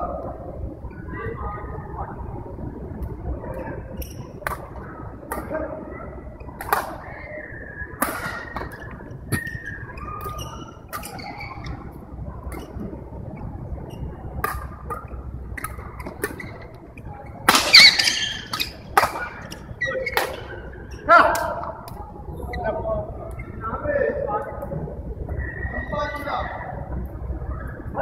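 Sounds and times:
murmur of chatter: 0:00.0 - 0:28.0
shoes squeaking on court floor: 0:08.3 - 0:12.8, 0:15.6 - 0:21.1
racket hitting shuttlecock: 0:17.5 - 0:20.5.

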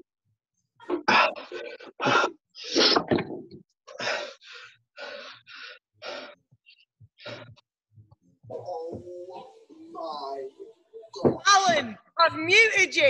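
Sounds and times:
heavy rasping breaths: 0:03.9 - 0:07.6.

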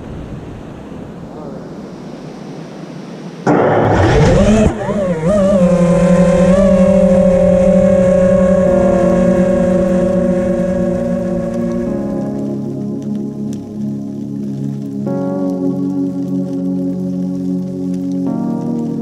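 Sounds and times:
quadcopter motors whining: 0:03.8 - 0:11.7.

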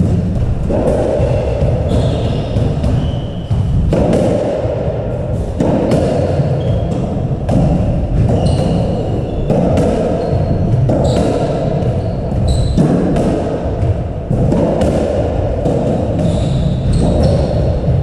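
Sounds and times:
squash ball smacking: 0:00.0 - 0:18.0
shoes squeaking on wooden floor: 0:01.2 - 0:03.7, 0:08.3 - 0:09.5, 0:10.1 - 0:12.8, 0:16.2 - 0:17.8.

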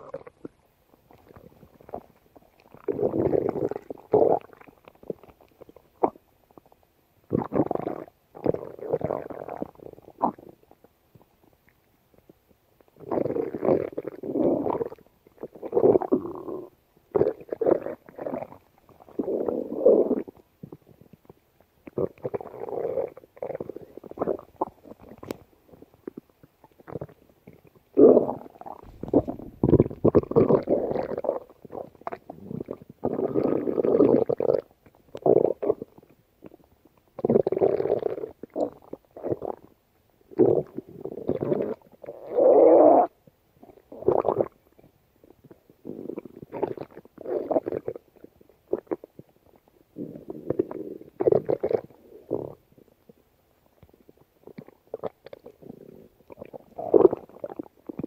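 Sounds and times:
stomach growling: 0:00.0 - 0:58.0.

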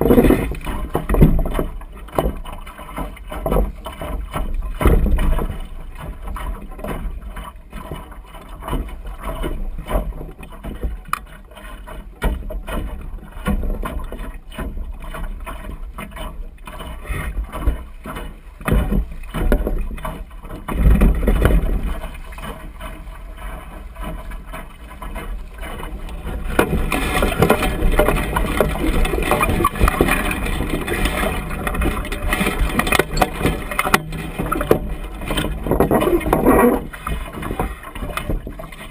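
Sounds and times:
water rushing along a hull: 0:00.0 - 0:38.9
wind rumbling on microphone: 0:17.0 - 0:38.9.

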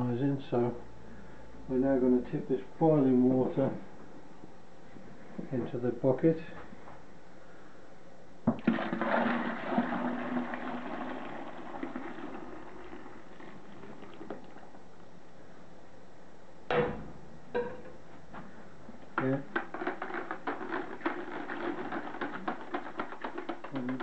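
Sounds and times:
liquid pouring into water: 0:08.5 - 0:14.9.

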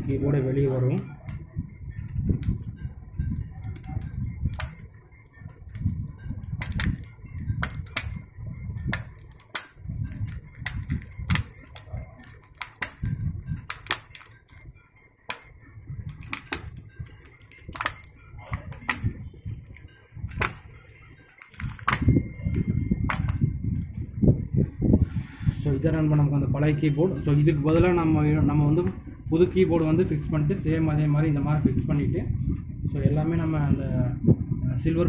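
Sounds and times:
plastic clicks and snaps: 0:08.8 - 0:19.2, 0:20.3 - 0:24.0.

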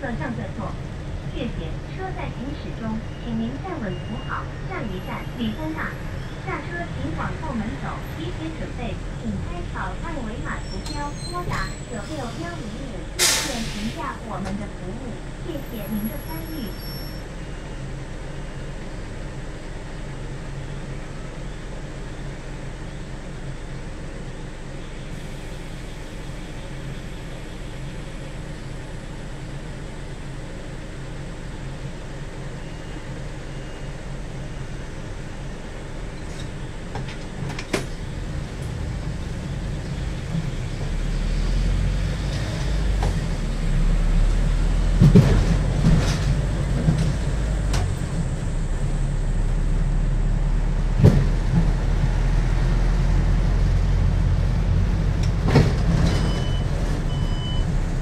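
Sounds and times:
bus engine hum: 0:00.0 - 0:58.0
knocks and rattles in bus cabin: 0:36.2 - 0:40.7, 0:42.3 - 0:43.5, 0:44.6 - 0:48.6, 0:50.8 - 0:58.0.

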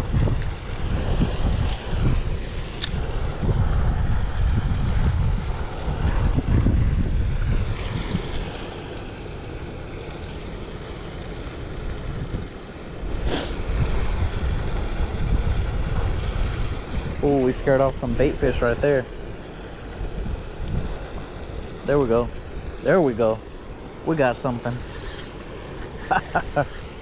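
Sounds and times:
wind buffeting microphone: 0:00.0 - 0:27.0
short hiss: 0:13.2 - 0:13.6.

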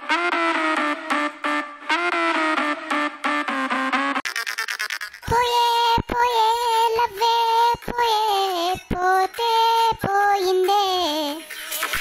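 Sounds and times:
high-pitched singing voice: 0:05.1 - 0:11.6.

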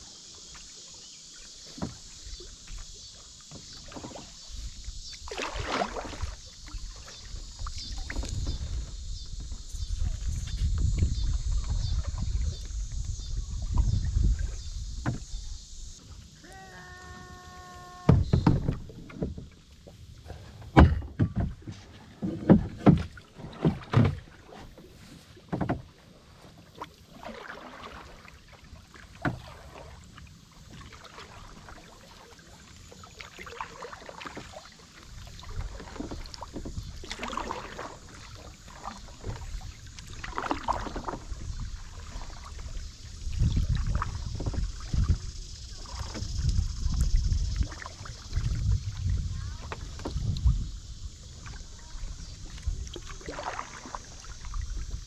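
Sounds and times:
paddle swishing in water: 0:00.0 - 0:55.0
wind buffeting microphone: 0:07.3 - 0:16.0, 0:41.0 - 0:53.0
sharp knocks on kayak: 0:15.0 - 0:15.4, 0:18.1 - 0:19.5, 0:20.6 - 0:24.2, 0:25.5 - 0:25.9.

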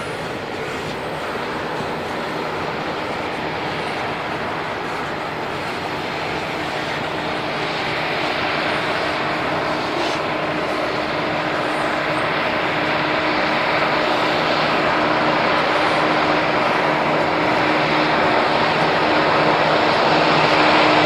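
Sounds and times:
diesel locomotive drone: 0:00.0 - 0:21.0
train wheels rolling on rails: 0:00.0 - 0:21.0.

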